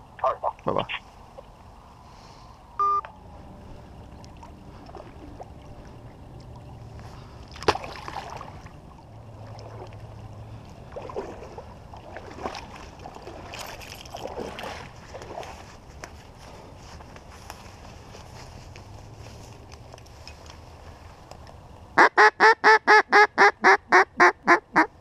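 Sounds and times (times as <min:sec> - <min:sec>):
short electronic beep: 0:02.8 - 0:03.1
boots sloshing through shallow water: 0:03.4 - 0:21.8
decoy splashing onto water: 0:07.5 - 0:08.7
dry reeds rustling: 0:12.7 - 0:21.4.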